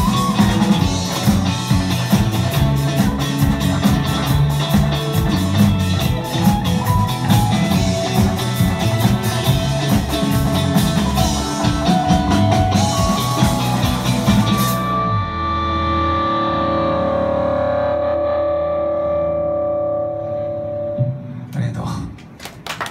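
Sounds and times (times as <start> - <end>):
drum kit: 0.0 - 15.2
electric guitar: 0.0 - 21.5.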